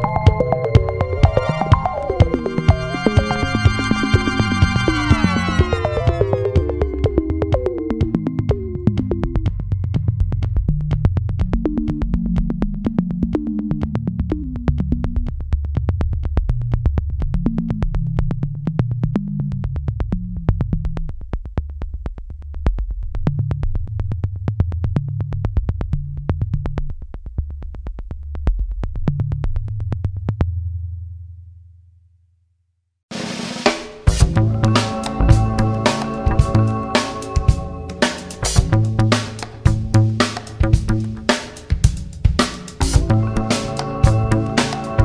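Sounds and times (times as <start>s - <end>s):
synthesizer bass line: 0.0s - 9.7s, 34.2s - 41.3s, 42.8s - 45.0s
steady ticking beat: 0.0s - 14.8s, 34.0s - 45.0s.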